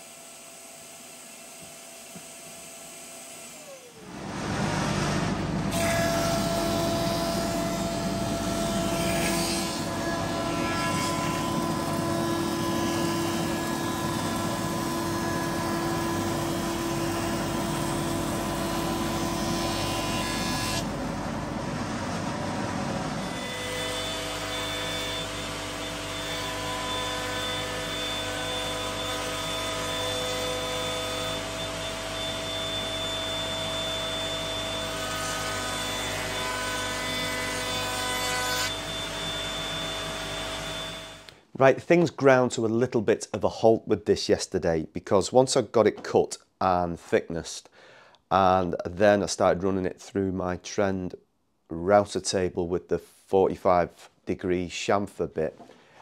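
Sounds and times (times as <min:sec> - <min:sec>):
router cutting wood: 0:00.0 - 0:21.0, 0:23.1 - 0:41.4
dust extractor running: 0:03.5 - 0:09.0, 0:11.4 - 0:23.4.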